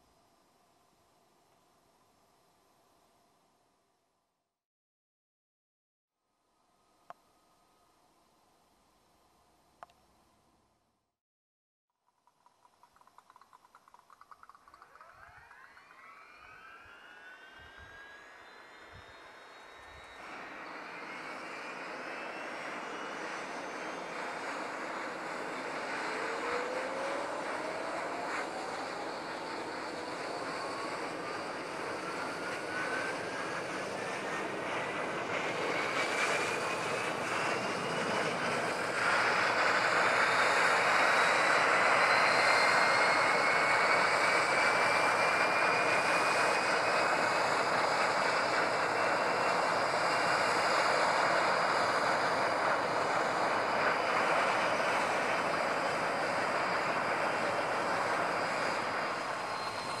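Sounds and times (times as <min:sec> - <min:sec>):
jet engine whine rising: 0:12.4 - 1:00.0.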